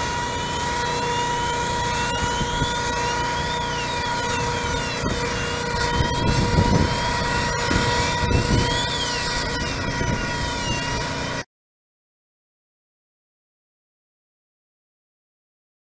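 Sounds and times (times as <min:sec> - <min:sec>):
fan engine drone with whine: 0:00.0 - 0:11.4
higher tone sweeping up and down: 0:00.0 - 0:11.4.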